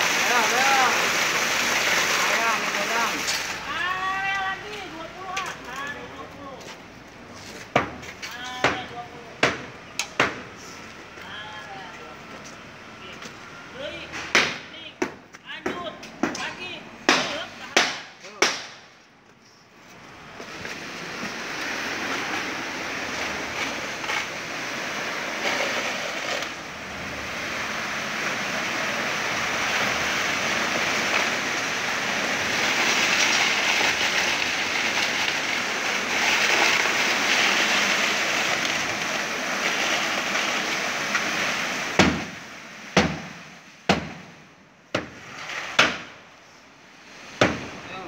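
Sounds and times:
wet concrete rushing down a hose: 0:00.0 - 0:04.6, 0:20.4 - 0:43.4
sharp knocks: 0:42.0 - 0:42.3, 0:43.0 - 0:44.3, 0:44.9 - 0:45.2, 0:45.8 - 0:46.1, 0:47.4 - 0:47.7.

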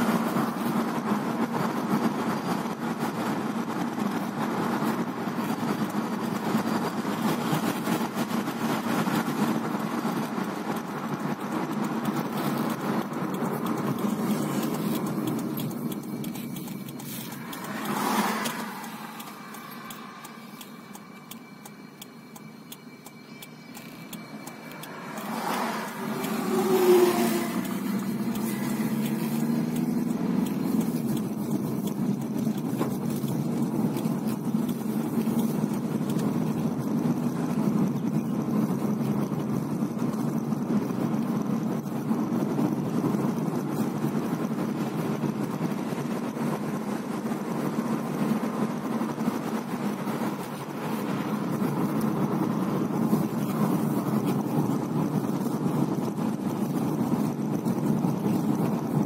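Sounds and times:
road and engine noise in car: 0:00.0 - 0:59.0
passing vehicle whoosh: 0:07.7 - 0:21.0, 0:24.4 - 0:32.5
truck passing close: 0:07.8 - 0:36.2.

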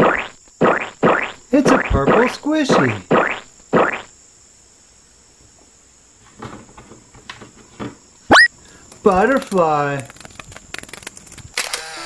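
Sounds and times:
faint high whine: 0:00.0 - 0:06.3
squishy ball squelching: 0:08.3 - 0:11.4.

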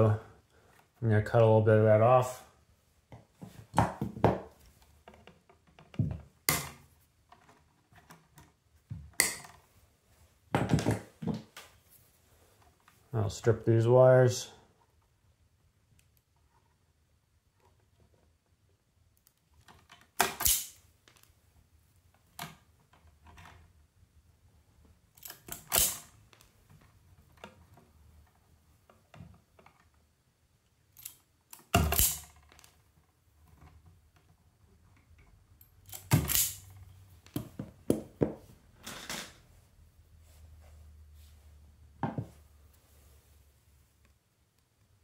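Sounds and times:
wire strippers snapping: 0:20.2 - 0:20.8, 0:31.0 - 0:32.4.

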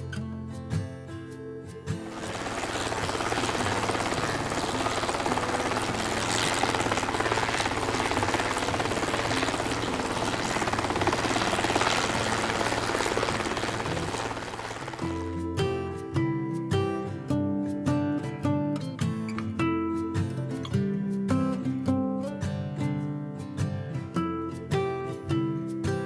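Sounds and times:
guitar music: 0:00.0 - 0:26.0
helicopter rotor chop: 0:02.0 - 0:15.6.

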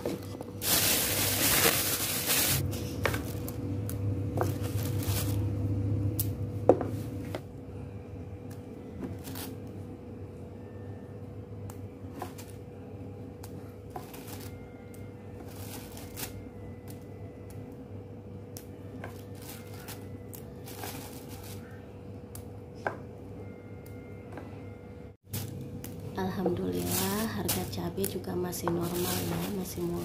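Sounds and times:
plastic bag crinkling: 0:00.0 - 0:03.5, 0:04.4 - 0:05.5, 0:19.4 - 0:21.7, 0:26.6 - 0:30.0
faint steady hum: 0:00.0 - 0:30.0.

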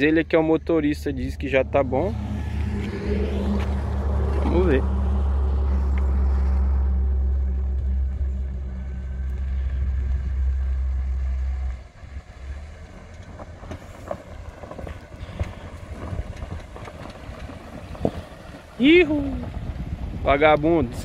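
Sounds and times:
car engine rumble: 0:00.0 - 0:21.0
tyres crunching over earth: 0:09.4 - 0:19.7.

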